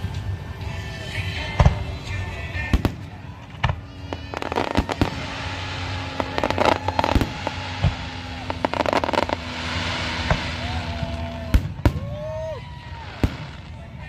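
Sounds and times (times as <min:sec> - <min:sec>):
fireworks crackling: 0:00.0 - 0:14.0
fireworks booming: 0:01.5 - 0:14.0.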